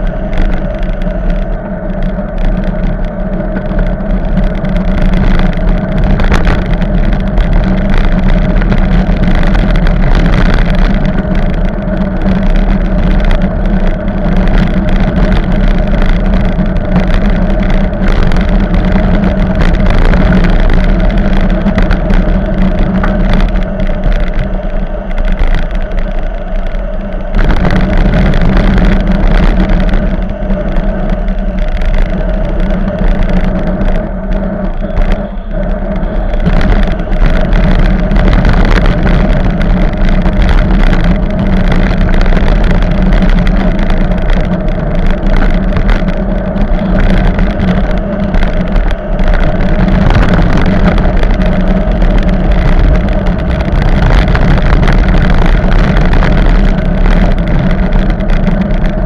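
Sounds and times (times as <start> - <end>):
road noise: 0.0 - 59.0
wind rushing: 0.0 - 59.0
cars passing: 10.8 - 42.2.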